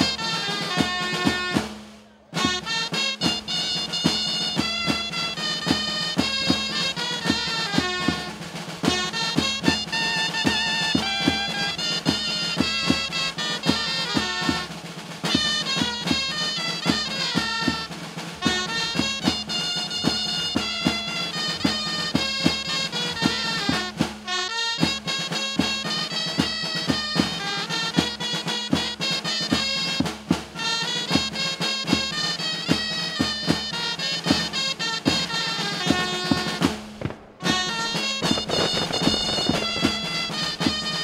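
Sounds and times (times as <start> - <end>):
double-reed pipes playing melody: 0.0 - 41.0
snare drum beat: 0.0 - 41.0.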